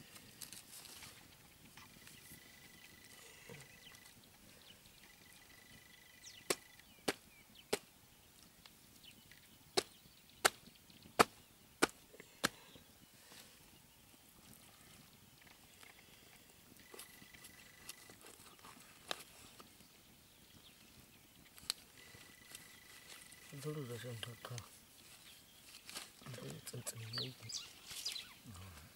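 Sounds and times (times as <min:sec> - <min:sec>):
axe chopping into carcass: 0:11.2 - 0:12.6.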